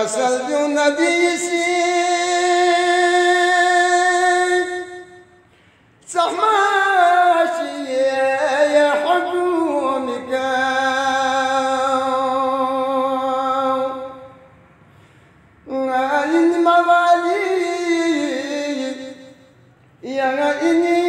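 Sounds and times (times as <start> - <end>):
person chanting unaccompanied: 0.0 - 5.4, 6.0 - 14.5, 15.6 - 19.4, 20.0 - 21.0
breath: 5.4 - 6.0, 14.8 - 15.6.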